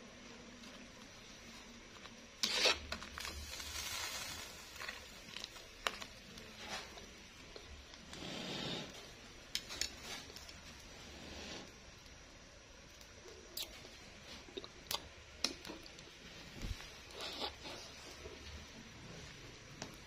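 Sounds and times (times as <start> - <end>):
spatula scraping pot: 2.4 - 3.0.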